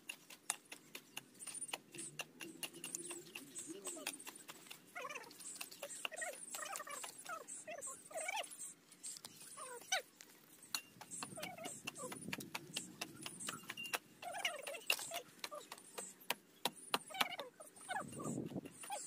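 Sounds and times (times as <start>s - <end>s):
sharp clicks and taps: 0.0s - 7.4s, 10.7s - 17.5s
dog whimpering: 5.0s - 8.7s.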